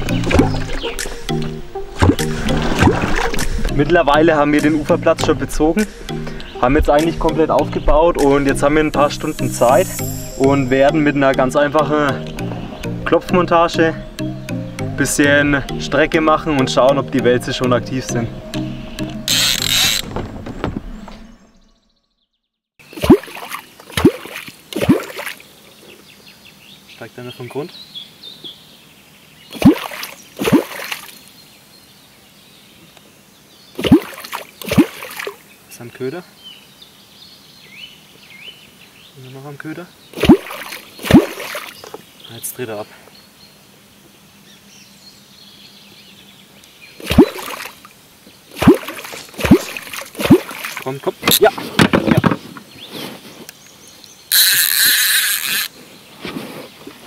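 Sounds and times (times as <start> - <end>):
wooden clonk striking water: 0.0 - 3.9, 40.2 - 42.0, 47.1 - 47.8, 48.6 - 52.4
wooden clonk plopping in water: 0.2 - 1.2, 2.0 - 3.5.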